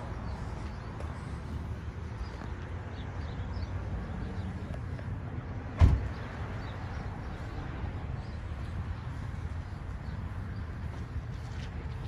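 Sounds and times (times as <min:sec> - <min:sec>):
sharp thump: 0:05.8 - 0:06.2.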